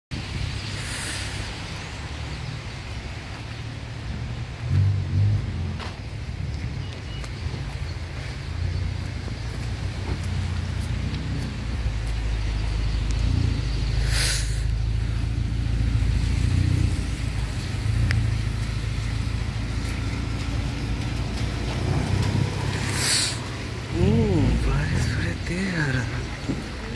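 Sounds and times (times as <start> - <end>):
car engines and traffic rumble: 0.1 - 26.9
short hiss: 0.8 - 1.6, 14.0 - 14.7, 22.9 - 23.4.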